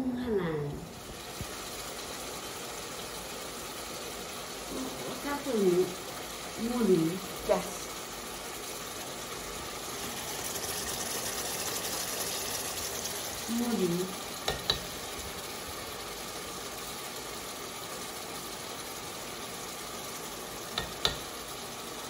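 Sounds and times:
pot simmering and sizzling: 0.0 - 22.0
person speaking: 4.7 - 6.0, 6.6 - 7.9, 13.4 - 14.2.

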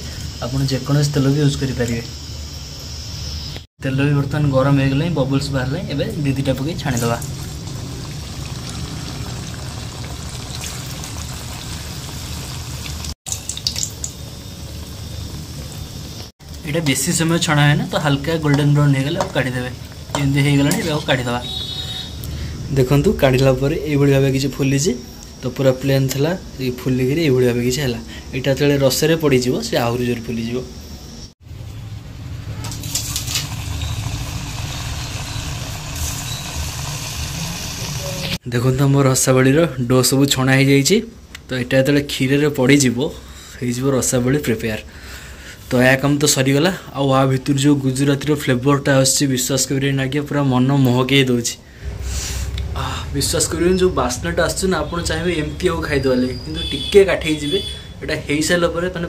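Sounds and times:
oil sizzling while deep-frying: 0.0 - 3.7, 6.2 - 22.1, 31.2 - 38.4
oil spitting: 6.9 - 14.2, 32.6 - 38.4.

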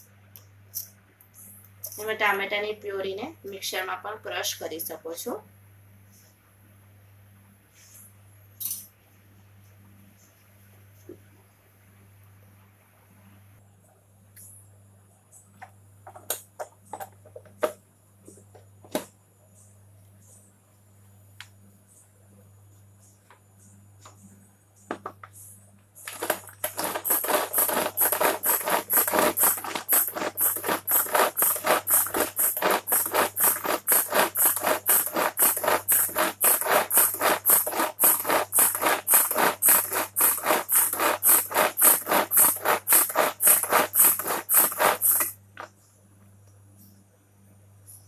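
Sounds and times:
food chopper rattling: 26.1 - 45.4.

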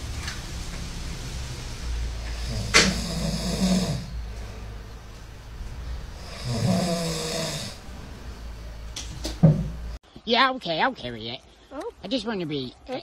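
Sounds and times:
dog snoring: 2.2 - 4.2, 6.1 - 7.8.

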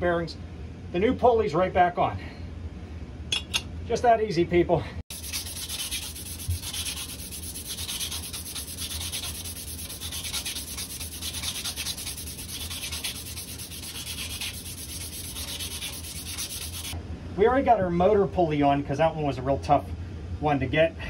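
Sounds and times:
steady low hum: 0.0 - 21.0
emery cloth rasping on metal shaft: 5.1 - 17.0.

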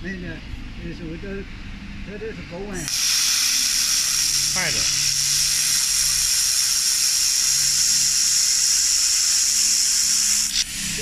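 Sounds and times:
laser welder welding: 2.8 - 11.0
shielding gas hissing: 2.8 - 11.0.

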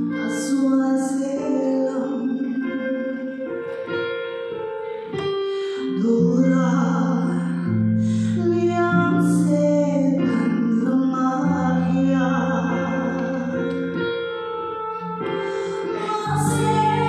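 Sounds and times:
instrumental accompaniment: 0.0 - 8.0, 9.0 - 17.0
woman singing gospel: 0.1 - 3.4, 8.3 - 14.0, 15.2 - 17.0.

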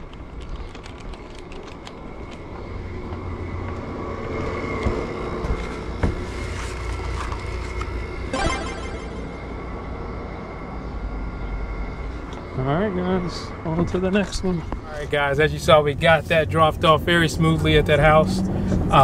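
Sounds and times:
road rumble inside car: 15.6 - 19.0.

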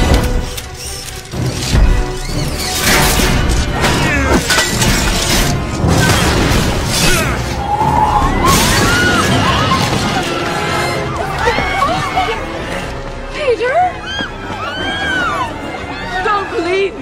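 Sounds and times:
dramatic film music: 0.0 - 17.0
heavy metal crashes and shattering: 2.8 - 10.6.

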